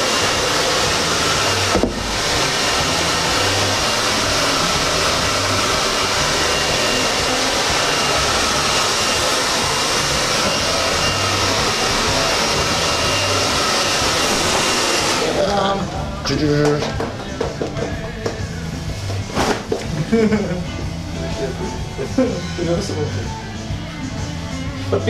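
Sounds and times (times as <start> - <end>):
hair dryer blowing: 0.0 - 16.0.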